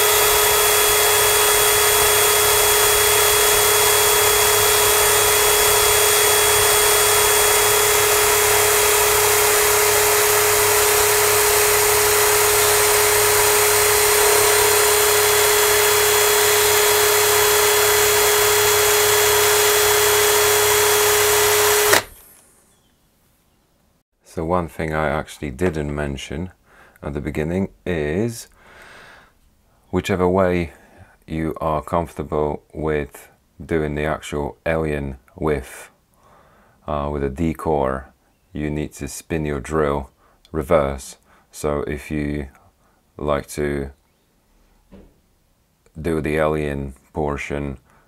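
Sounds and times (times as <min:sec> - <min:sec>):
electric drill humming: 0:00.0 - 0:22.6.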